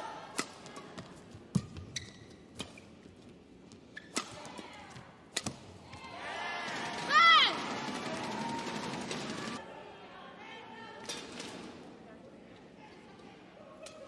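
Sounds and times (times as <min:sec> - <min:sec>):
crowd noise: 0:06.0 - 0:14.0.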